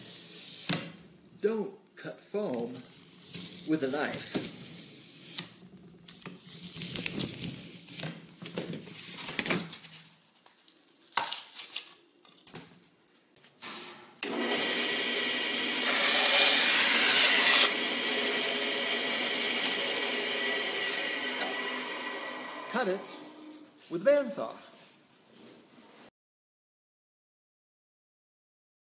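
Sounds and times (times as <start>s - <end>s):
bandsaw cutting foam: 2.8s - 5.7s, 14.2s - 23.3s.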